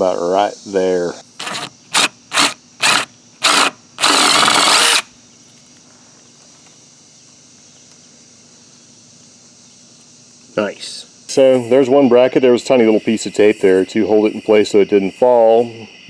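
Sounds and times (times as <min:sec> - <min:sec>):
cordless drill boring into plastic: 0:01.4 - 0:05.1.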